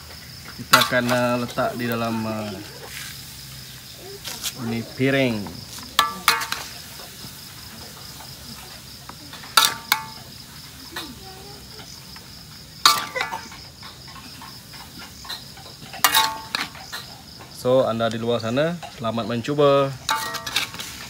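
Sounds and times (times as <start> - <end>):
crickets chirping: 0.0 - 21.0
metal spatula scraping a wok: 0.6 - 10.5, 12.8 - 17.3, 20.0 - 21.0.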